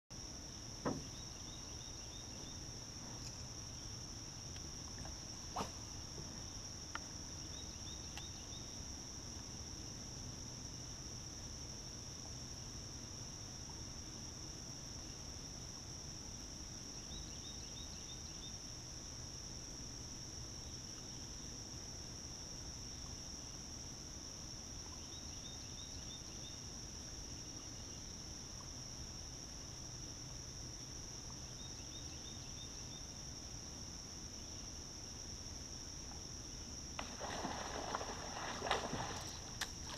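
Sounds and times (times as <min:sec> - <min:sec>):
high-pitched insect chorus: 0:00.2 - 0:39.9
quick insect chirps: 0:00.3 - 0:09.0, 0:37.0 - 0:39.9.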